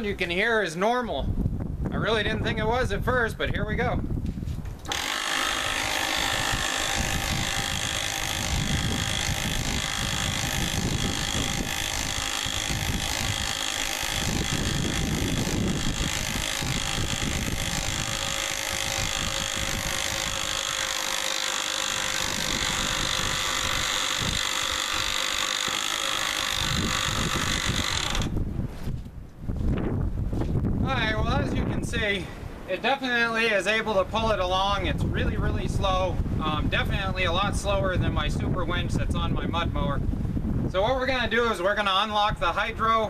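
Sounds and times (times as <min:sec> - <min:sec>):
electric winch whining: 0:04.8 - 0:28.4.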